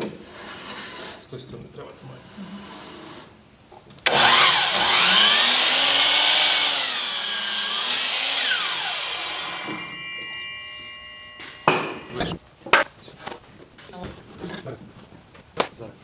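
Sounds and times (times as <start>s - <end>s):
miter saw cutting wood: 4.1s - 12.4s.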